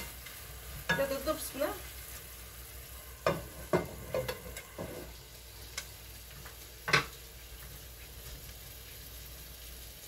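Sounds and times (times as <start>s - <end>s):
vegetables sizzling in pan: 0.0s - 10.0s
cookware knocks and clicks: 3.3s - 5.1s, 6.9s - 7.1s.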